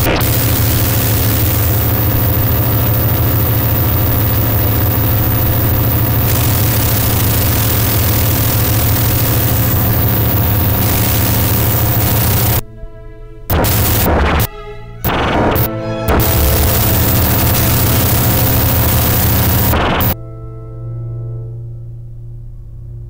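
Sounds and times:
loud dense noise wash: 0.0s - 12.6s, 13.5s - 14.5s, 15.1s - 20.2s
steady layered tones: 0.0s - 12.6s, 13.5s - 20.2s
low droning hum: 0.2s - 12.7s.

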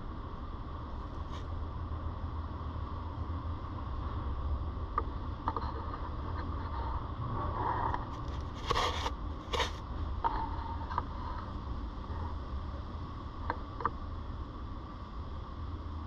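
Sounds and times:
steady low rumble: 0.0s - 16.0s
rabbit scratching cardboard: 8.2s - 10.8s.

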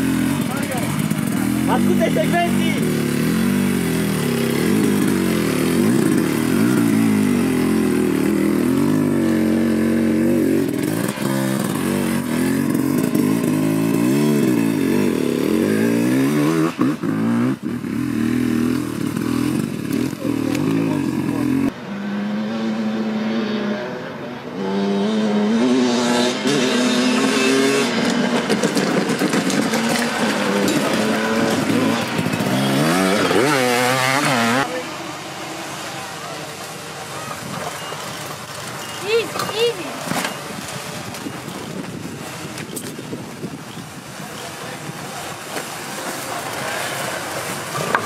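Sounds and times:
motorcycle engine rising in pitch: 0.0s - 34.9s
dirt bike engine revving: 0.0s - 43.6s.

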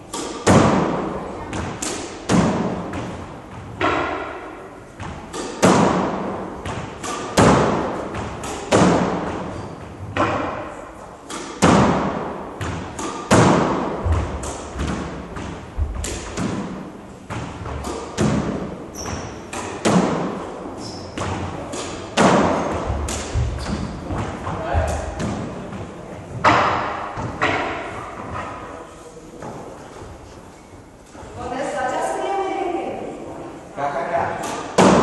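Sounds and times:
squash ball hitting racquets and walls: 0.0s - 31.0s, 34.1s - 35.0s
shoes squeaking on wooden floor: 9.4s - 10.2s, 18.9s - 19.5s, 20.7s - 21.3s, 22.6s - 25.0s.

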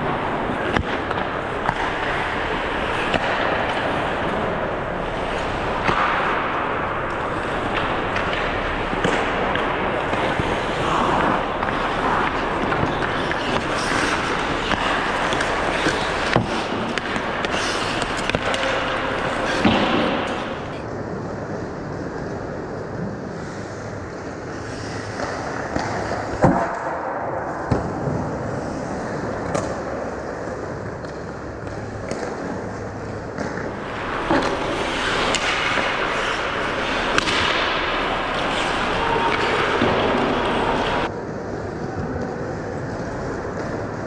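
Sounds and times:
hockey sticks and puck clacking: 0.0s - 20.9s, 24.5s - 44.0s
skates hissing on ice: 10.1s - 20.8s, 24.5s - 26.4s, 33.8s - 41.0s.

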